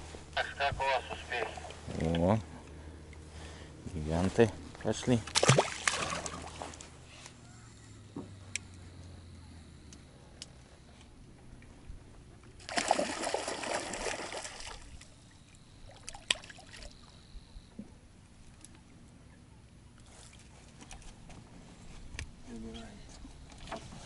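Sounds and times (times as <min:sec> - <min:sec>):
water splashing and sloshing: 0:05.0 - 0:07.0, 0:12.3 - 0:17.2, 0:23.3 - 0:24.0.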